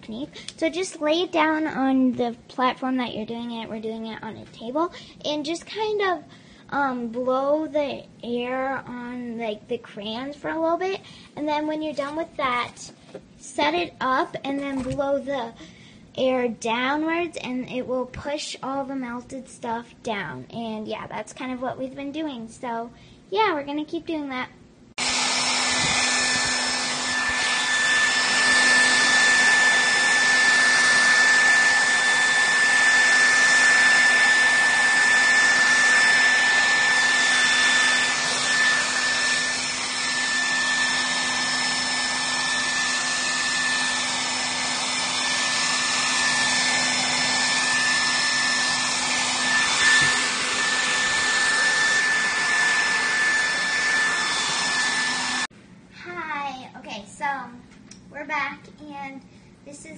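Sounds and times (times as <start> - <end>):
hair dryer running: 25.0 - 55.5.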